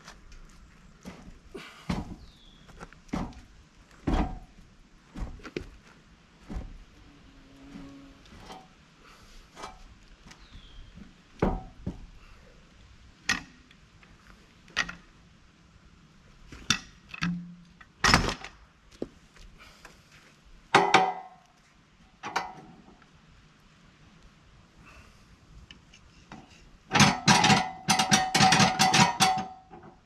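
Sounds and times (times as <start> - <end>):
log knocking on steel bed: 1.9 - 2.3, 3.1 - 5.7, 6.4 - 6.8, 11.0 - 12.1, 20.7 - 21.4.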